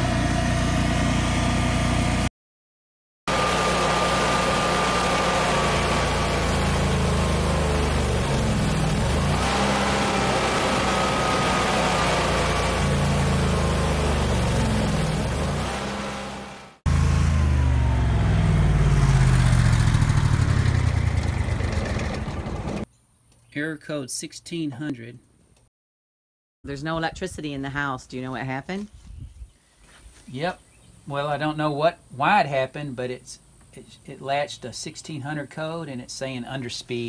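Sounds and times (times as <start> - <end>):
generator engine wavering: 3.3 - 22.8.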